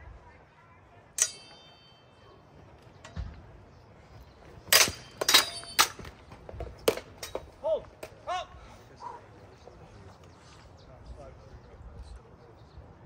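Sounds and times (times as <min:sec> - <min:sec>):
swords clashing: 0:01.2 - 0:02.1, 0:04.7 - 0:06.1.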